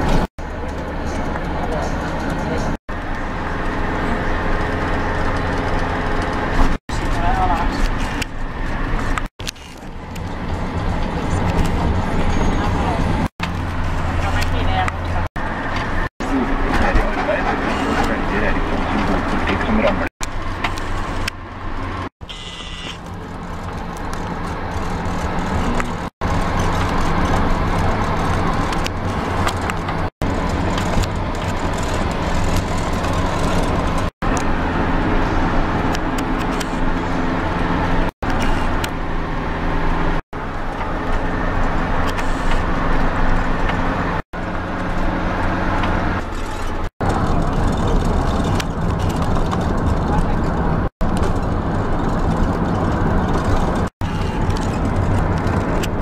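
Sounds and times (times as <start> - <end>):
vehicle engine hum: 0.0 - 56.0
tyre and wind noise: 22.9 - 56.0.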